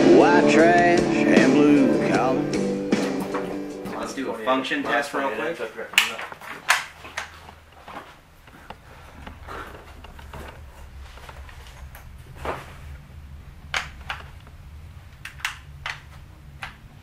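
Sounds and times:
low steady hum: 6.8s - 17.0s.

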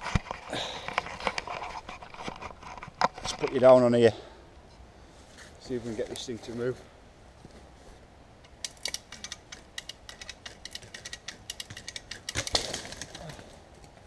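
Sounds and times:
lever winch ratcheting: 8.5s - 12.5s
tree falling with crackling thud: 12.3s - 13.8s.

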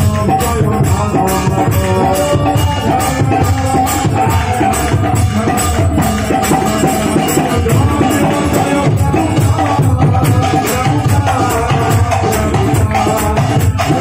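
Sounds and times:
hand drums playing rhythm: 0.0s - 14.0s
harmonium chords: 0.0s - 14.0s
men singing: 0.0s - 14.0s.

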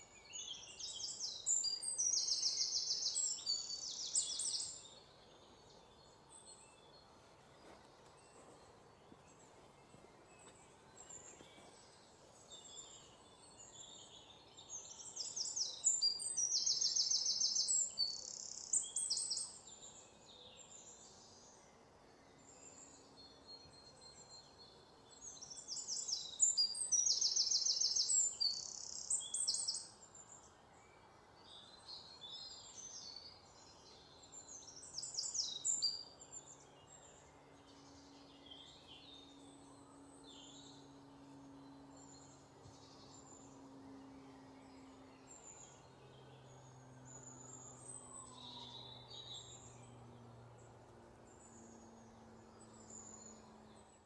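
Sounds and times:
faint background hiss: 0.0s - 54.0s
songbird singing: 0.0s - 54.0s.

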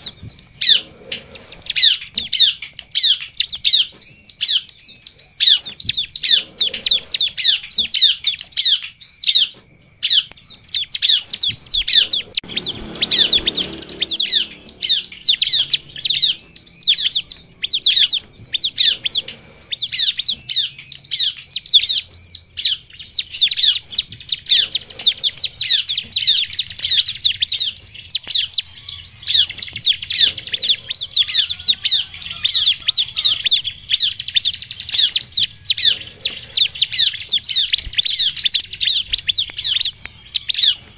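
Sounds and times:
bird chirping rapidly: 0.0s - 40.9s.

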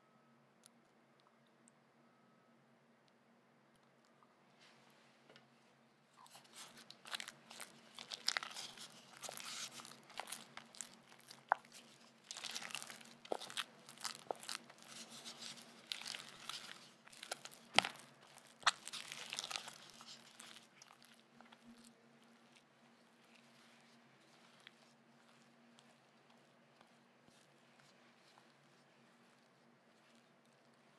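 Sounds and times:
spatula stirring thick mixture: 6.3s - 30.9s.

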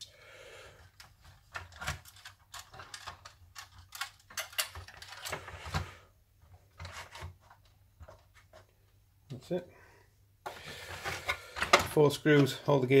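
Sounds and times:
plastic toy parts clicking: 0.9s - 5.4s.

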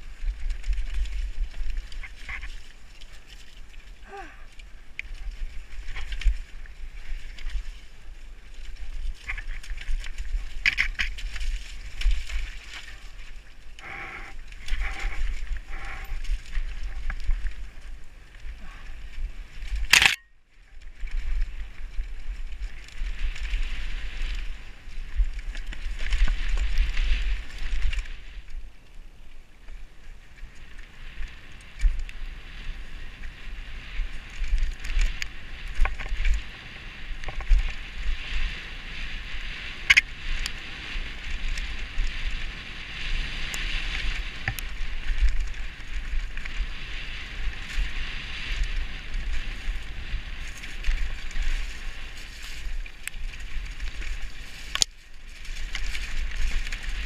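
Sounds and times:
bike clicks and knocks: 9.2s - 12.9s, 19.6s - 20.3s
wind buffeting microphone: 30.5s - 57.0s.

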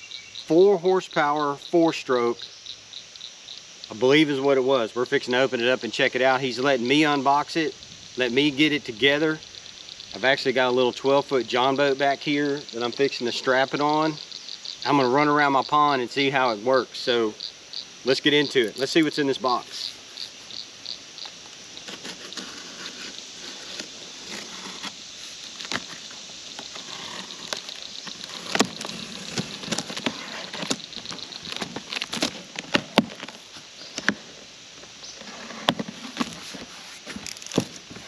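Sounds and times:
crickets chirping: 0.0s - 38.0s
tape tearing: 21.8s - 33.4s, 35.2s - 37.8s
cardboard crackling: 21.8s - 34.2s, 35.2s - 38.0s.

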